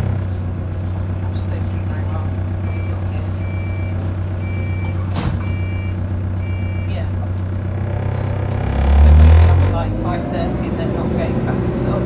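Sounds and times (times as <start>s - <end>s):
bus engine humming: 0.0s - 12.0s
vehicle warning beeps: 2.6s - 7.2s.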